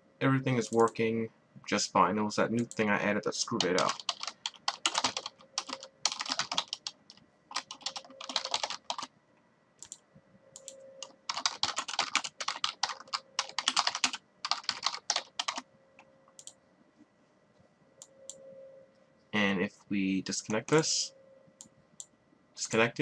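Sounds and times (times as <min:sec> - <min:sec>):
typing on computer keyboard: 0:03.5 - 0:09.1, 0:10.6 - 0:15.6.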